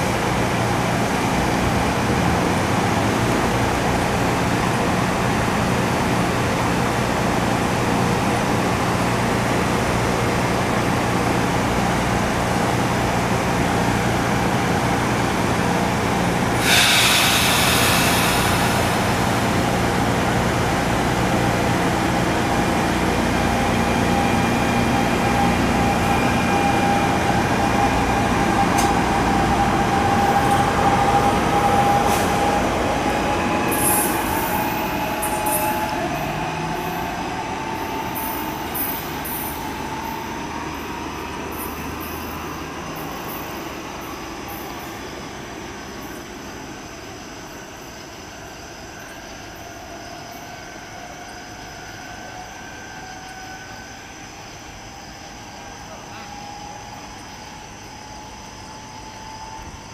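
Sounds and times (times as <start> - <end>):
rumble of train cars: 0.0 - 59.9
burst of hiss: 16.6 - 20.0.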